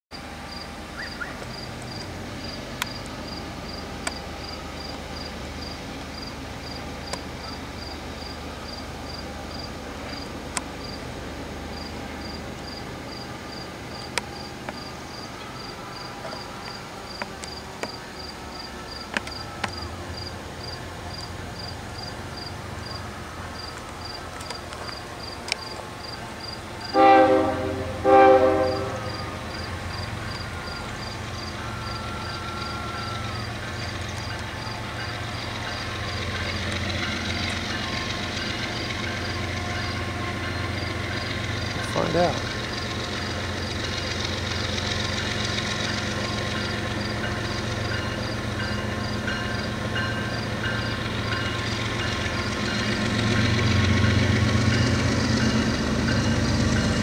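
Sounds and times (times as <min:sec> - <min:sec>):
locomotive low rumble: 0:00.2 - 0:57.0
insect chirping: 0:11.7 - 0:26.9, 0:29.0 - 0:41.7
train horn blasts: 0:26.8 - 0:33.6.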